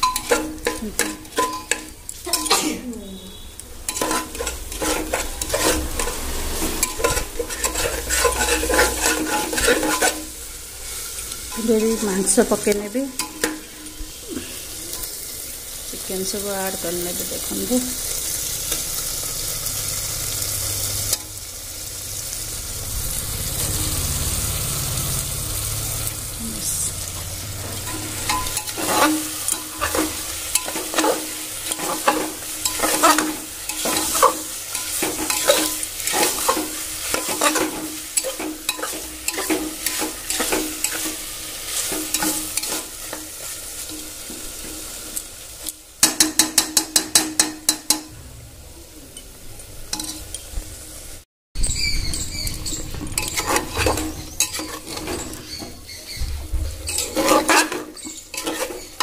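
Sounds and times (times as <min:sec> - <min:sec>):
spoon tapping a pot: 0:00.0 - 0:02.6, 0:46.0 - 0:48.1
metal spoon scraping a pot: 0:00.0 - 0:12.5, 0:27.4 - 0:44.1, 0:49.9 - 0:50.4, 0:51.6 - 0:59.0
chicken sizzling in oil: 0:00.0 - 0:48.2, 0:49.0 - 0:59.0.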